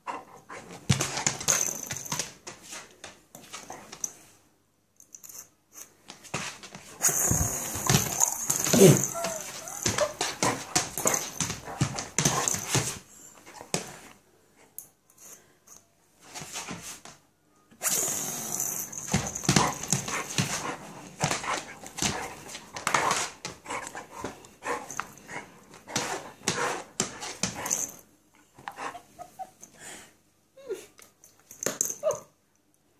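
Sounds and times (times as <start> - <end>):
dog nails clicking on floor: 0.8 - 4.2, 5.0 - 13.0, 18.6 - 28.0.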